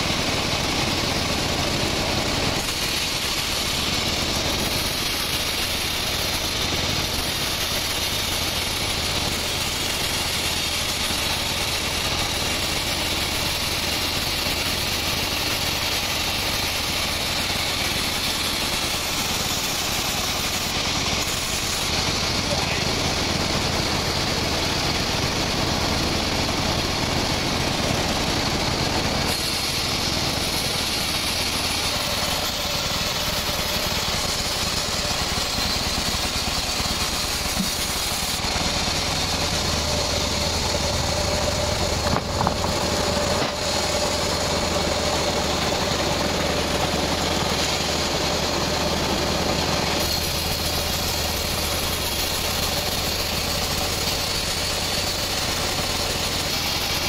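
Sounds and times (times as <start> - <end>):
band saw cutting logs: 0.0 - 57.0
low drive hum: 37.1 - 46.6.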